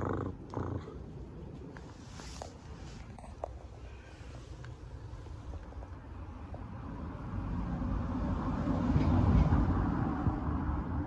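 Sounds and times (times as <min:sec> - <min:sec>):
vehicle passing with tyre noise: 0:04.1 - 0:11.0.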